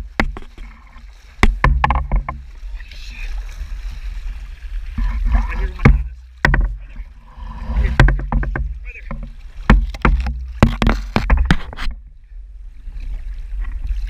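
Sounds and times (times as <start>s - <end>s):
sharp knocks on hull: 0.0s - 2.5s, 5.0s - 12.0s
boat engine rumbling: 0.0s - 13.9s.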